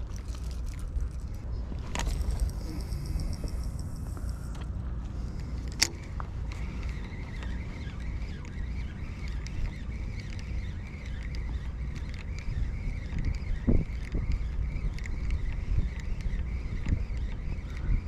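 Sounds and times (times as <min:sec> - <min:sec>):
faint high whine: 0:00.0 - 0:18.0
wind rumbling on microphone: 0:00.0 - 0:18.0.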